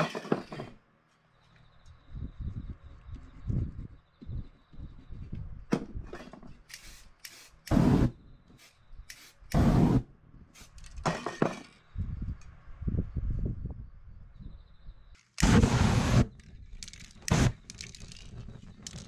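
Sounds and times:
tools tapping and scraping: 0.0 - 0.8, 5.7 - 7.4, 10.7 - 11.9
aerosol spray flame hissing: 6.8 - 10.0, 15.4 - 16.2.

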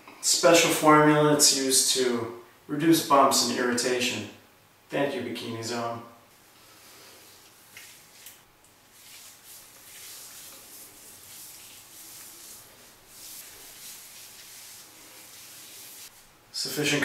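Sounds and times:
hands rubbing cream on scalp: 7.2 - 16.3.

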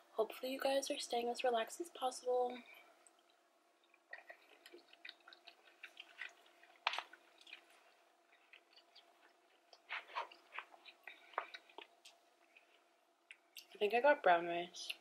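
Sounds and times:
person chewing: 3.0 - 13.7.

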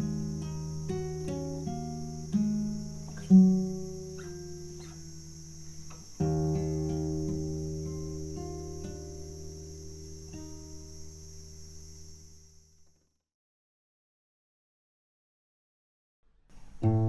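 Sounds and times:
fingerstyle classical guitar: 0.0 - 12.3, 16.6 - 17.0.

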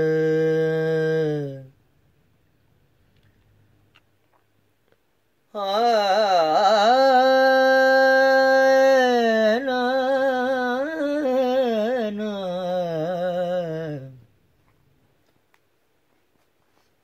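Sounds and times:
man singing unaccompanied: 0.0 - 1.8, 5.5 - 14.4.

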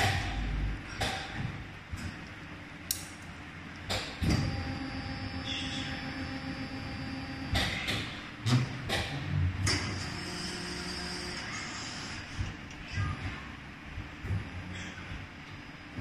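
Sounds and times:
machine mechanical hum: 0.0 - 16.0
steady whining tones: 3.6 - 8.6.

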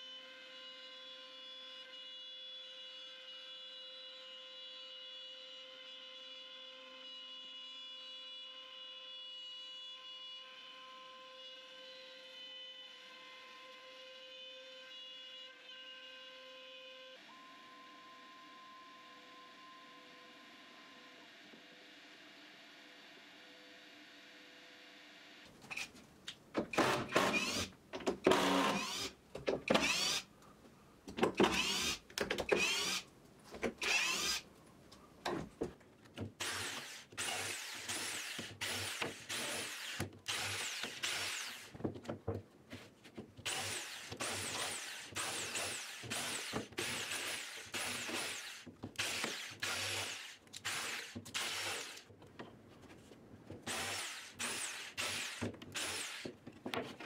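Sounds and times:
electric jigsaw cutting plywood: 26.7 - 27.7, 28.3 - 29.1, 29.7 - 30.2, 31.4 - 33.0, 36.4 - 41.7, 43.4 - 52.1, 53.6 - 56.3.

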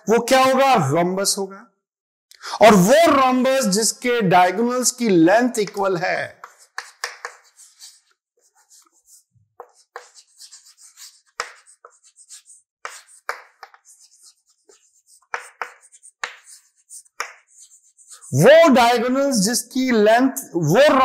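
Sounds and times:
chalk tapping on blackboard: 5.0 - 18.3
chalk scratching: 5.6 - 18.4.

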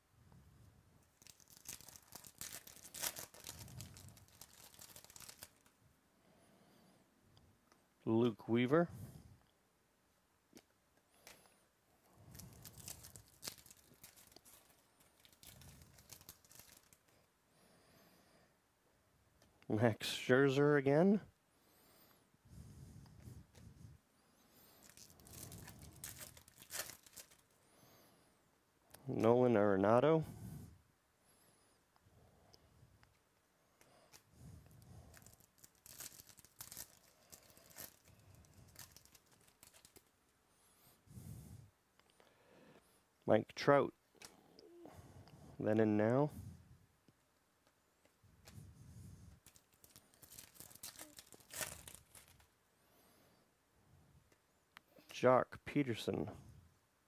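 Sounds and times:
card pack wrapper crinkling: 1.1 - 5.8, 12.2 - 17.2, 24.7 - 27.6, 35.0 - 40.1, 49.4 - 52.5.

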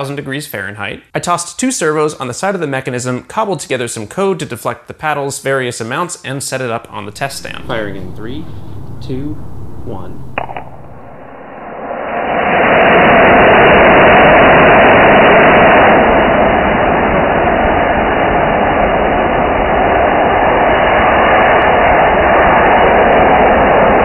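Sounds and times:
rocket motor exhaust roar: 7.0 - 12.0.

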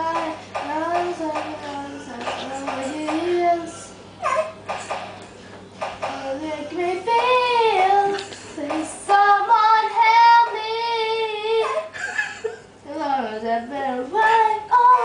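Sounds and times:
girl singing: 0.0 - 3.9, 6.1 - 11.9, 12.9 - 15.0.

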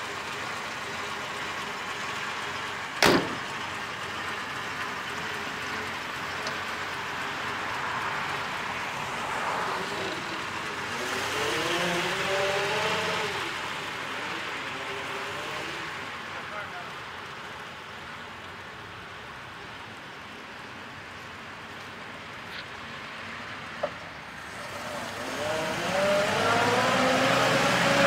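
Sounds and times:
car engine pulling away: 0.0 - 19.4, 20.6 - 28.0
car door slamming: 3.0 - 3.5.

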